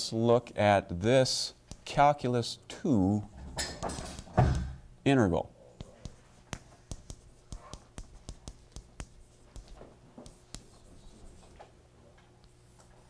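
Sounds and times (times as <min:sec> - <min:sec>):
faint steady hum: 0:00.0 - 0:13.0
chalk tapping on blackboard: 0:01.7 - 0:02.0, 0:05.8 - 0:11.5.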